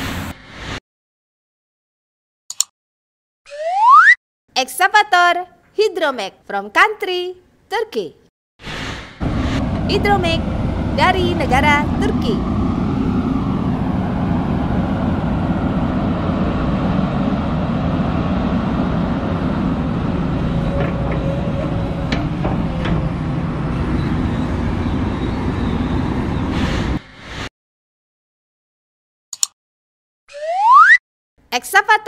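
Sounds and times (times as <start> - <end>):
faint whine: 8.8 - 27.2
excavator diesel engine running: 9.2 - 27.0.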